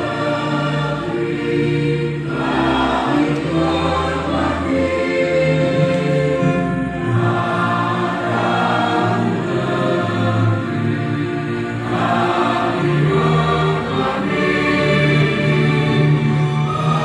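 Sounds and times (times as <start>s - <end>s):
group singing in unison: 0.0s - 17.0s.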